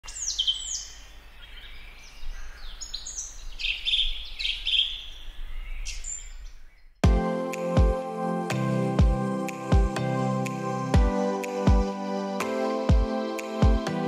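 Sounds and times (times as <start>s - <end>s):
songbirds chirping and singing: 0.0s - 7.0s.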